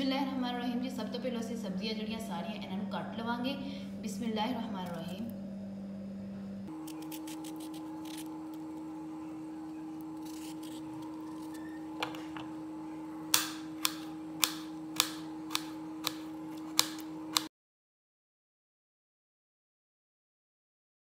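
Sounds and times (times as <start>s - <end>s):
steady low hum: 0.0s - 17.5s.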